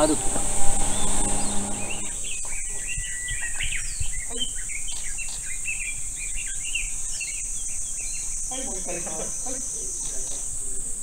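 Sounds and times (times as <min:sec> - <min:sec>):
low steady hum: 0:00.0 - 0:02.9
high-pitched insect drone: 0:00.0 - 0:03.2, 0:08.2 - 0:11.0
birds chirping: 0:00.0 - 0:11.0.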